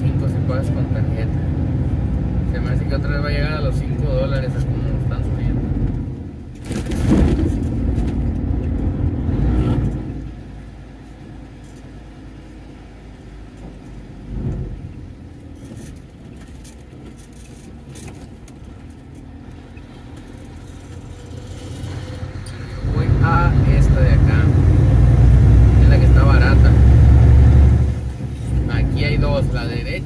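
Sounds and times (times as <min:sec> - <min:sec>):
diesel truck engine: 0:00.0 - 0:30.0
road noise: 0:00.0 - 0:30.0.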